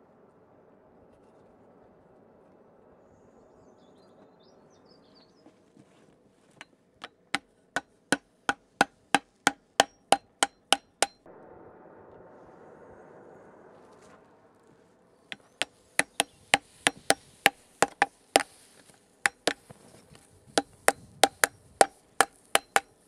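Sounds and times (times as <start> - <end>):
hammer striking steel: 7.0 - 11.3, 15.3 - 18.6, 19.3 - 19.6, 20.6 - 23.0.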